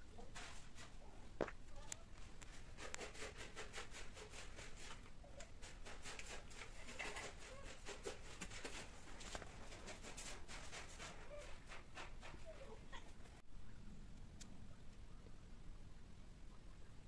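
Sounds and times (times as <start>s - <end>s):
cats rustling and scuffing: 0.0s - 13.4s.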